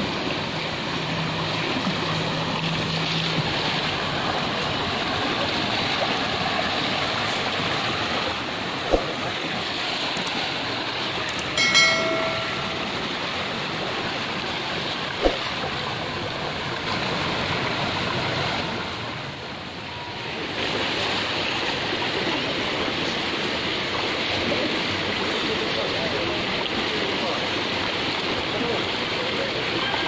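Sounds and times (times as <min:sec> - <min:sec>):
river water rushing over rocks: 0:00.0 - 0:26.1
short pitched tone: 0:11.5 - 0:13.4.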